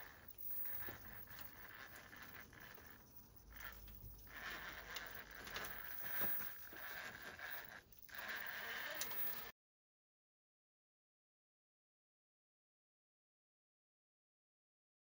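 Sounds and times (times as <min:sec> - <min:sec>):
electric motor whining: 0:00.0 - 0:09.5
tyres scraping on rock: 0:00.0 - 0:09.5.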